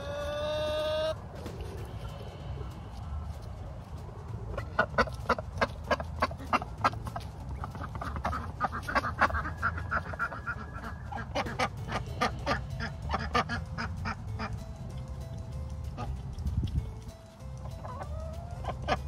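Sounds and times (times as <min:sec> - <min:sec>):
duck quacking: 0:04.5 - 0:14.5.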